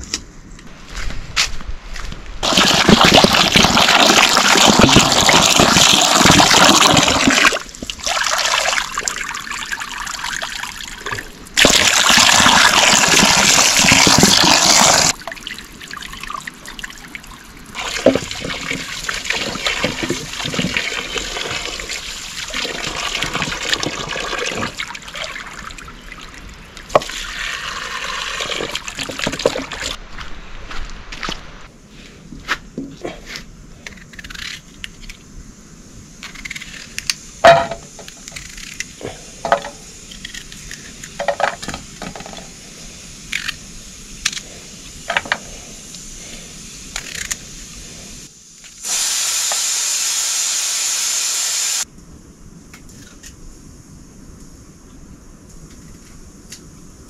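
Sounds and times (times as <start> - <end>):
water pouring into vessel: 2.4 - 25.7
water splashing and trickling: 2.4 - 30.0.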